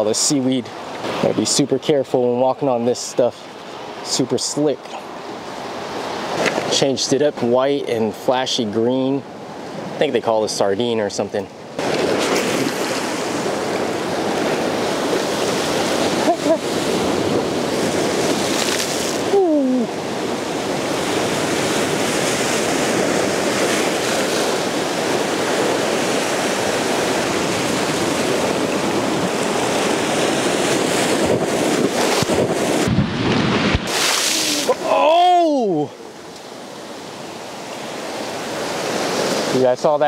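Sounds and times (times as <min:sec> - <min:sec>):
surf washing over rocks: 0:00.0 - 0:40.0.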